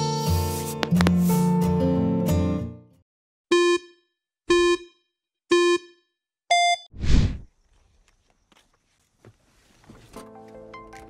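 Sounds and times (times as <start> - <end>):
countdown beeps: 3.5 - 6.9
whoosh: 7.0 - 7.4.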